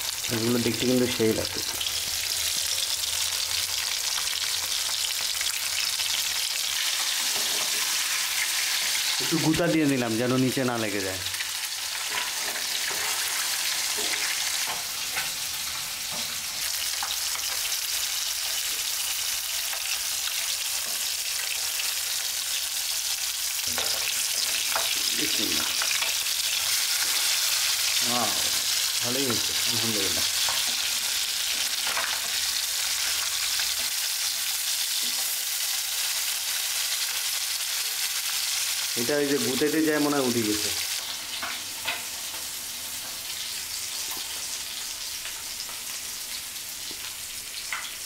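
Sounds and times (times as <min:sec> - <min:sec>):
oil sizzling in a pan: 0:00.0 - 0:48.0
metal spatula scraping and tapping: 0:07.2 - 0:07.9, 0:12.1 - 0:15.4.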